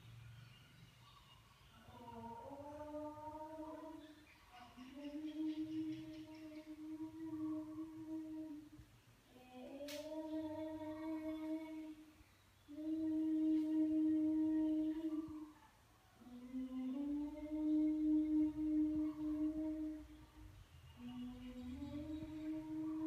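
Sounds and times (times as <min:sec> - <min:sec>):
person humming: 0:01.9 - 0:04.1, 0:04.8 - 0:12.0, 0:12.7 - 0:15.5, 0:16.2 - 0:20.1, 0:21.0 - 0:23.0
sharp click: 0:09.8 - 0:10.1.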